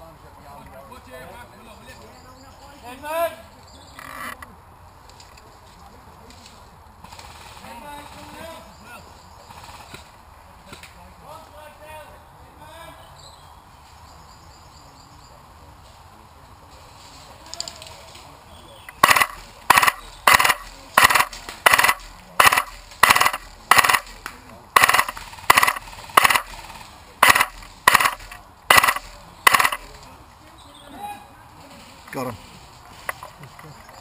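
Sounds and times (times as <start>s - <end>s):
airsoft rifle shots: 19.0s - 30.0s.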